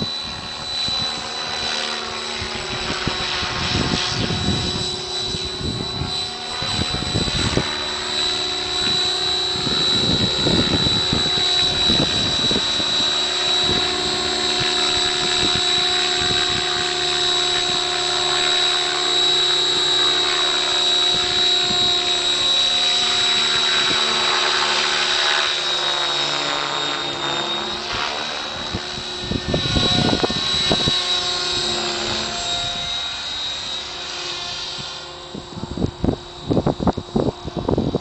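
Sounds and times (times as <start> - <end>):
rc helicopter motor whine: 0.0 - 38.0.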